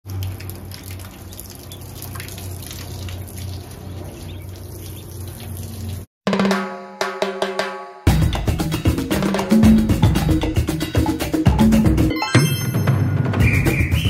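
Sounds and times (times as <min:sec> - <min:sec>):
ducklings tapping and splashing: 0:00.1 - 0:06.0
music with drums: 0:06.3 - 0:14.0.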